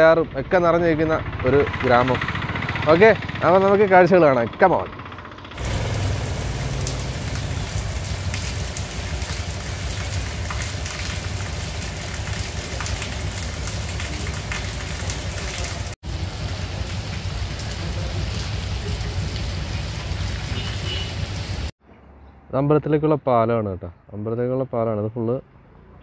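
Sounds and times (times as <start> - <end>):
steady rain on street and awnings: 5.6 - 21.7.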